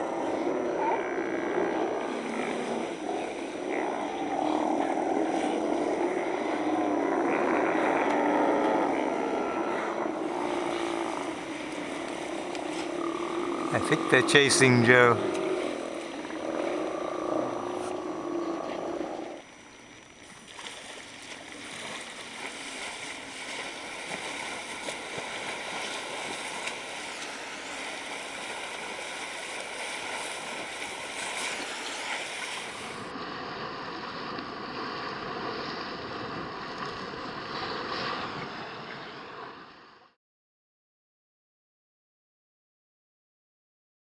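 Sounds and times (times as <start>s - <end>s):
sea lions croaking: 0.0s - 19.5s
water rushing: 0.0s - 39.6s
wind: 0.0s - 40.2s.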